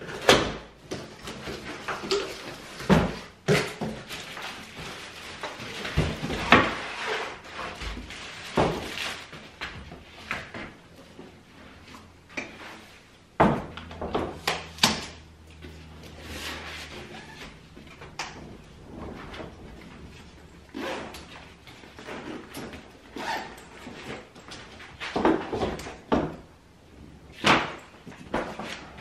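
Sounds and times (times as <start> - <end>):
cardboard and packaging rustling: 0.0 - 13.1.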